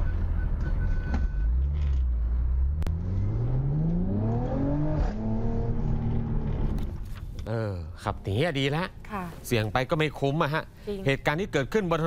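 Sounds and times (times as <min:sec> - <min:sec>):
low road rumble: 0:00.0 - 0:10.3
car engine accelerating: 0:00.6 - 0:07.0.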